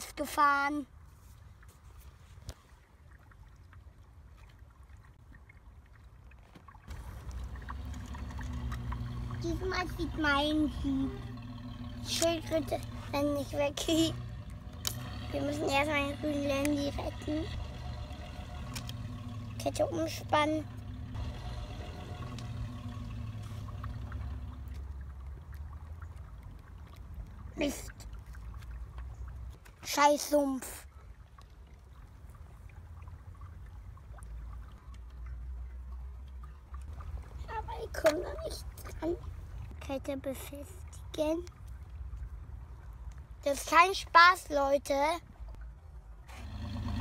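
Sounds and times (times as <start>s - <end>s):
water trickling over stones: 0.2s - 47.0s
faint low rumble: 6.9s - 29.6s.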